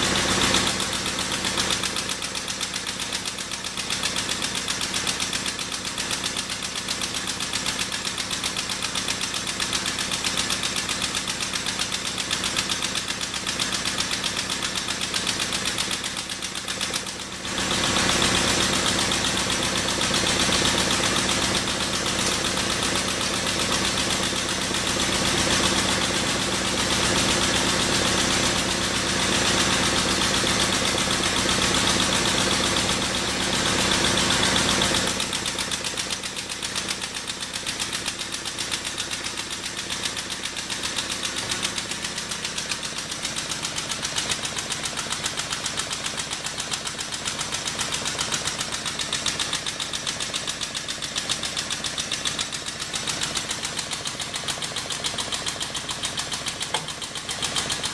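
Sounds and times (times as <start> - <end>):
hydraulic pump pulsing: 52.4 - 57.9.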